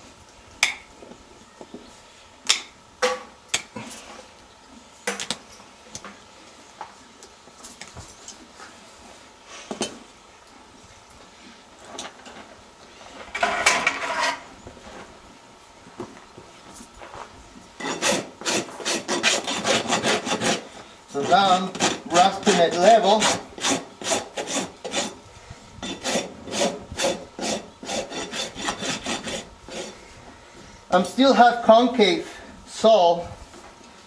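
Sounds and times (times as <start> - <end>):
rasp filing a hoof: 13.4 - 14.5, 17.8 - 25.2, 25.8 - 30.2.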